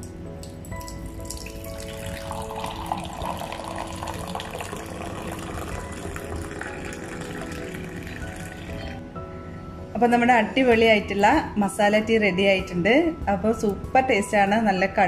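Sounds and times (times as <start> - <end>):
tea pouring into a mug: 0.4 - 9.0.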